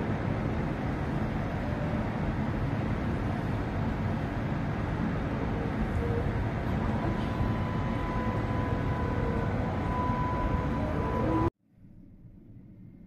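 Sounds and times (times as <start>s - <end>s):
city street rumble: 0.0s - 12.8s
faint steady tone: 5.2s - 13.0s.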